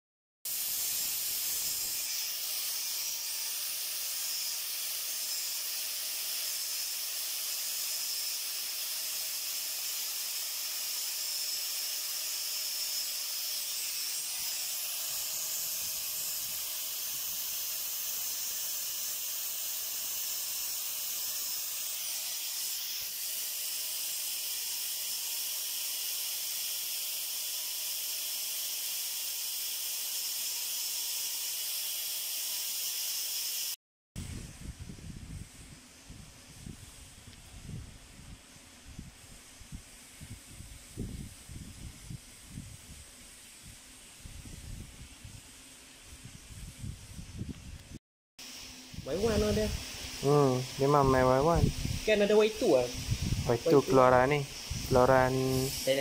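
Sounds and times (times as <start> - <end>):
angle grinder grinding metal: 0.5 - 33.8, 48.4 - 56.0.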